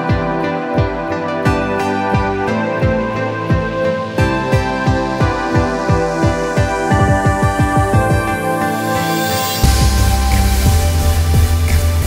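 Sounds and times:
sustained chords: 0.0s - 12.0s.

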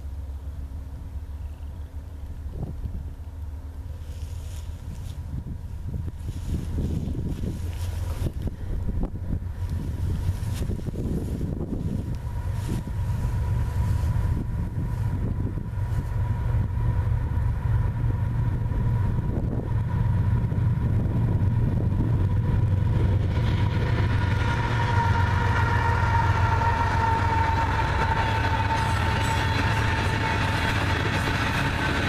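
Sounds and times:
freight train rumble: 0.0s - 32.0s
thin steady whine: 0.0s - 32.0s
hopper cars clattering: 15.4s - 32.0s.

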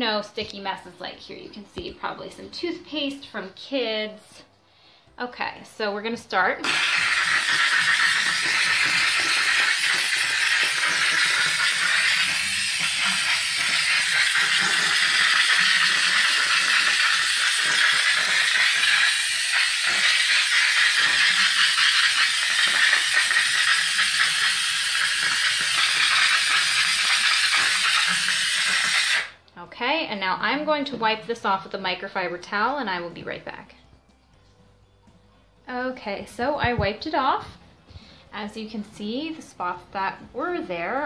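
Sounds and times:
steam hissing from nozzle: 6.6s - 29.4s.

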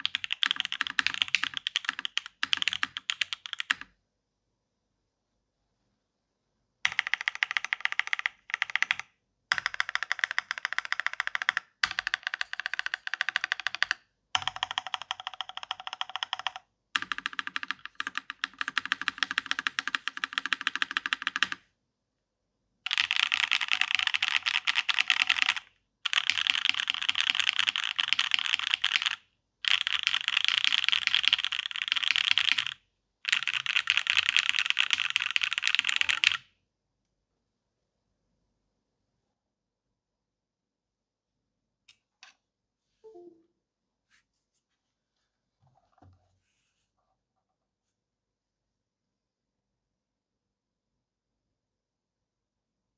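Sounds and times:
mechanical keyboard typing: 0.0s - 3.9s, 6.9s - 21.6s, 22.9s - 36.5s.

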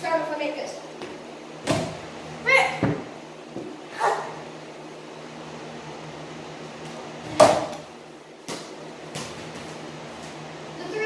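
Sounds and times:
steady low hum: 0.0s - 11.0s
ball hitting backboard and rim: 1.6s - 2.0s, 7.3s - 7.9s.

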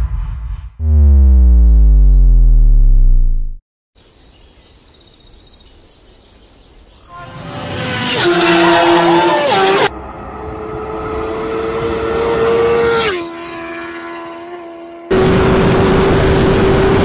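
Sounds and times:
descending bass-drop effect: 0.0s - 3.6s.

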